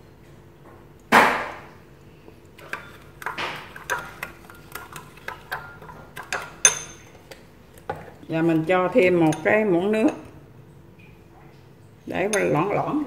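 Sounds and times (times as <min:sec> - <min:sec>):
spoon clinking in ceramic bowl: 0:02.6 - 0:07.4, 0:09.0 - 0:10.3, 0:12.2 - 0:12.7.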